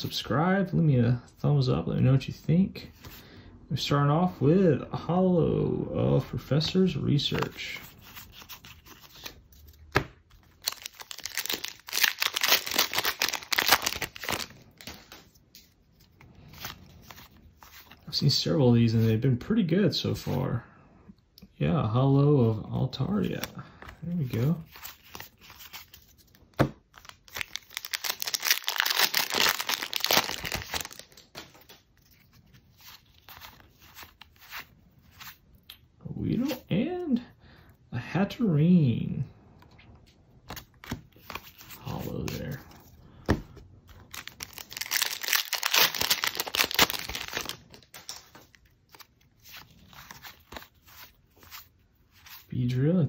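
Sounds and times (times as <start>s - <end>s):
cards being handled: 6.4s - 18.3s, 22.4s - 35.4s, 40.4s - 52.8s
foil wrapper tearing and crinkling: 10.5s - 15.0s, 26.9s - 34.6s, 44.0s - 48.2s.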